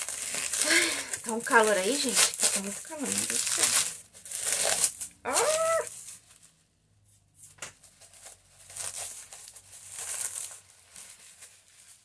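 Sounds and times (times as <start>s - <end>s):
bubble wrap crinkling: 0.0s - 6.6s, 7.8s - 12.0s
person humming: 5.3s - 5.9s.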